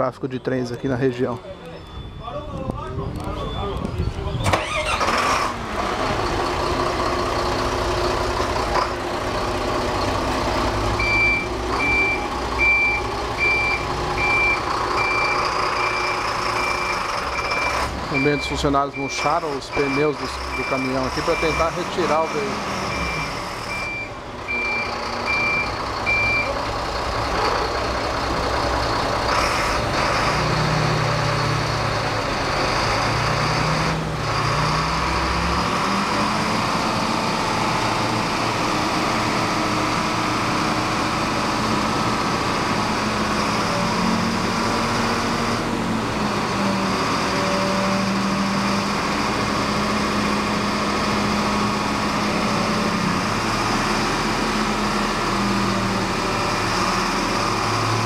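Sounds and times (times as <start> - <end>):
diesel engine running: 0.0 - 58.0
reversing beeper beeping: 0.3 - 4.4, 11.0 - 26.6.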